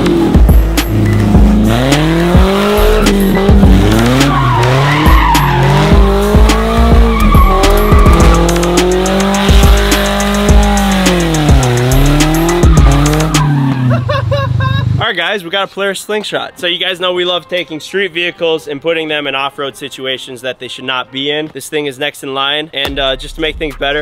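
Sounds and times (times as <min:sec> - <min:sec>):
car engine revving: 0:00.0 - 0:15.0
background music: 0:00.0 - 0:24.0
tyres squealing: 0:02.2 - 0:14.1.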